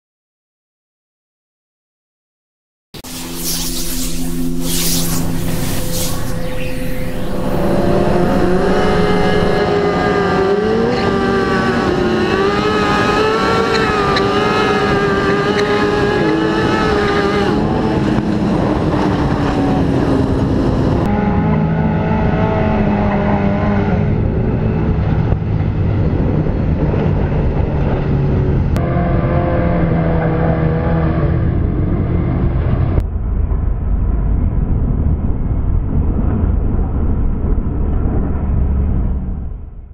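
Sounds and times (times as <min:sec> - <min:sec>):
motorcycle engines revving: 0:03.1 - 0:31.9.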